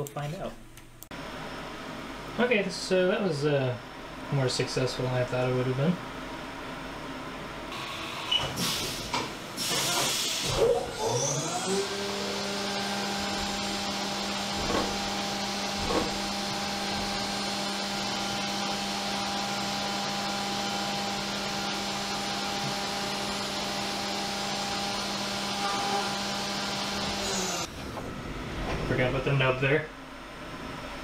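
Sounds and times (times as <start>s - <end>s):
milling machine spindle whine: 9.6s - 28.4s.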